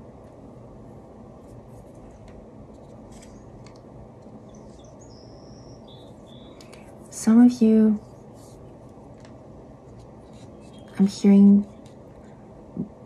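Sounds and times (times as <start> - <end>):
low background noise: 0.0 - 13.0
faint scratching: 9.9 - 12.4.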